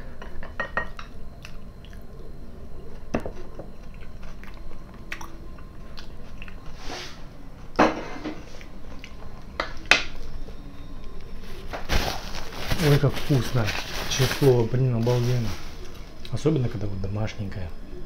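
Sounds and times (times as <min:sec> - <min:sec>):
close chewing: 0:03.7 - 0:06.7, 0:08.5 - 0:09.5.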